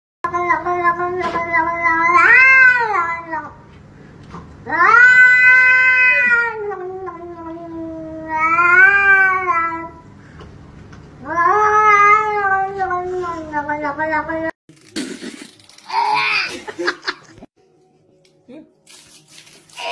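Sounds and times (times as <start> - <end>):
cat yowling: 0.8 - 3.5, 4.7 - 10.0, 11.2 - 13.2.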